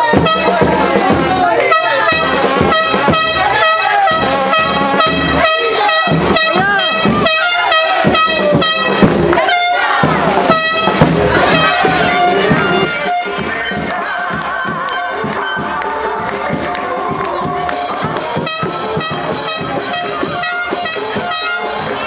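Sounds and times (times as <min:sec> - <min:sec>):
loud music with horn notes: 0:00.0 - 0:22.0
voices shouting: 0:00.0 - 0:22.0.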